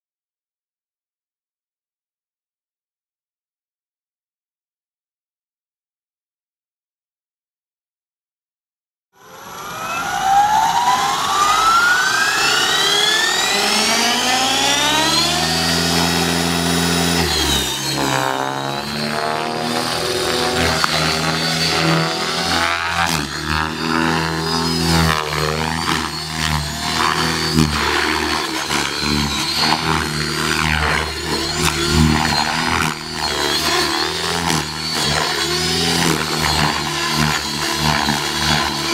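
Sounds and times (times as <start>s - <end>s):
model helicopter rotor whine: 9.2s - 38.9s.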